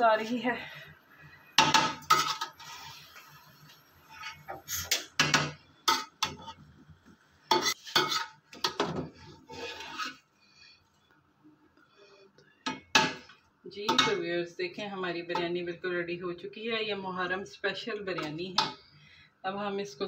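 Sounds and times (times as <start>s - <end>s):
metal spoon scraping metal pot: 2.0s - 3.1s, 4.1s - 5.1s, 7.5s - 8.8s, 9.4s - 10.2s.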